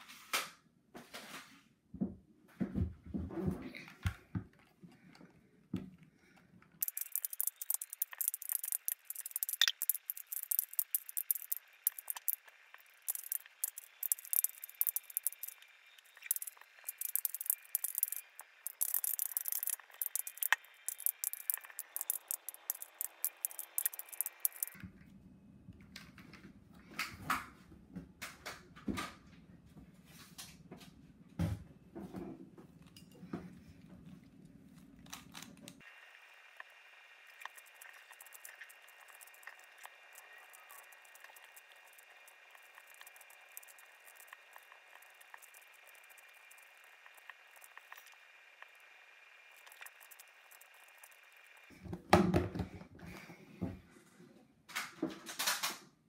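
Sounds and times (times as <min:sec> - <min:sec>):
plastic puzzle pieces clicking: 0:06.8 - 0:12.5, 0:13.1 - 0:15.6, 0:16.2 - 0:24.8.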